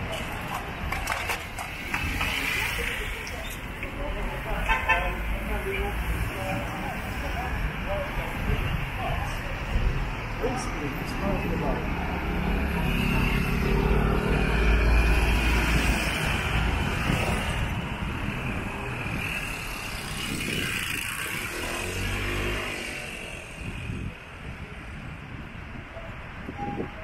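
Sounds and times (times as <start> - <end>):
vehicles passing on wet street: 0.0 - 27.0.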